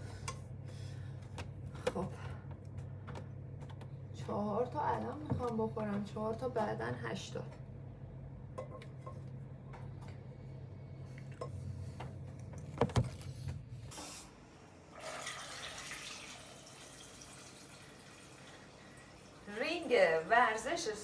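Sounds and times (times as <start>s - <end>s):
tap water filling metal pot: 15.0s - 18.7s.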